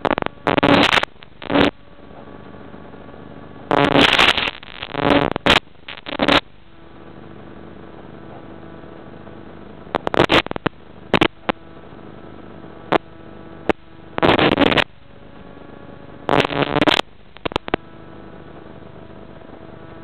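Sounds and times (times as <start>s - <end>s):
loud crackling bursts: 0.0s - 1.8s, 2.7s - 6.5s, 9.8s - 12.0s, 12.8s - 14.9s, 16.2s - 17.8s
faint steady tones: 0.0s - 20.0s
steady electrical hum: 0.0s - 20.0s.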